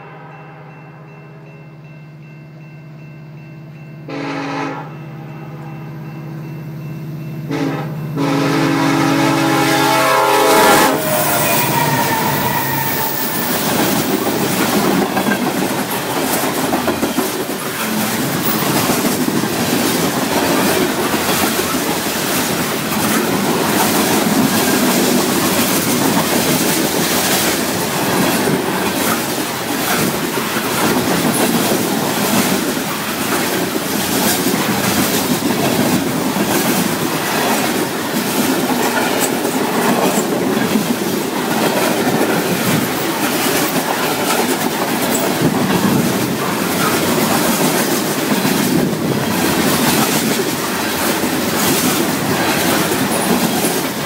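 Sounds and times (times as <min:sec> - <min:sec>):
train horn blasts: 0:04.1 - 0:06.0, 0:07.4 - 0:13.6
wheels clacking over rail joints: 0:11.0 - 0:54.0.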